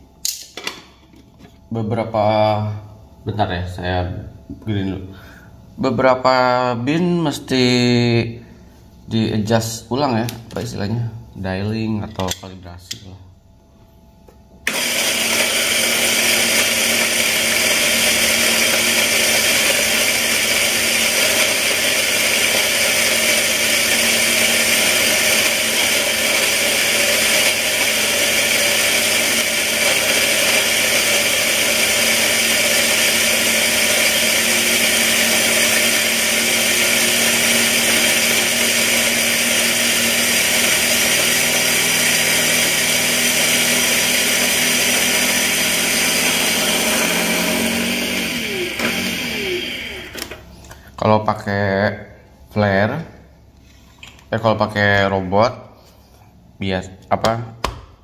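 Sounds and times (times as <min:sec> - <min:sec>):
electric coffee grinder running: 0:14.6 - 0:50.4.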